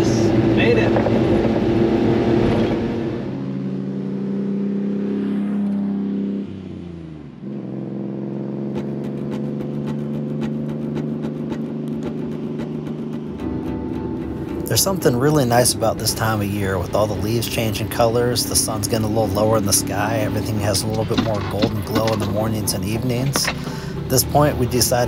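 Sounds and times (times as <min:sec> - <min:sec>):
trucks driving past: 0:00.0 - 0:25.0
small truck engine running: 0:06.7 - 0:25.0.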